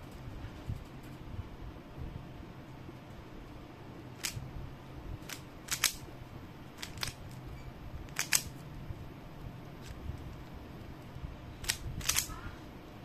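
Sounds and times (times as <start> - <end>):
low steady hum: 0.0 - 13.0
puzzle cube clicking: 4.2 - 4.4, 5.3 - 6.0, 6.8 - 7.4, 8.1 - 8.5, 11.6 - 12.3.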